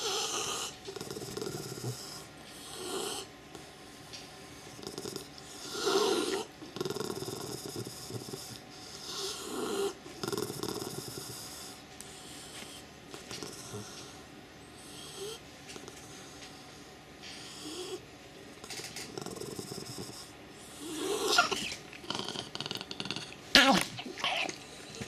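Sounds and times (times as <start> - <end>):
dog growling and snorting: 0.0 - 3.3, 4.7 - 11.8, 13.1 - 14.2, 18.6 - 25.0.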